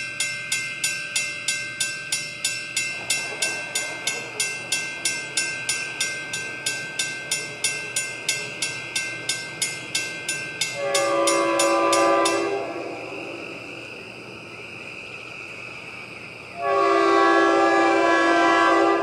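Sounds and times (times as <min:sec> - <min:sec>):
crossing warning bell ringing: 0:00.0 - 0:19.0
train air horn blast: 0:10.8 - 0:13.4, 0:16.6 - 0:19.0.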